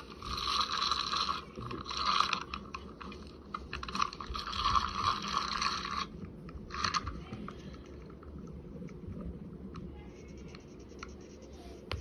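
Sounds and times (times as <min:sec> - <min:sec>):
fishing reel clicking and whirring: 0:00.0 - 0:02.8, 0:03.7 - 0:06.1, 0:06.7 - 0:07.1.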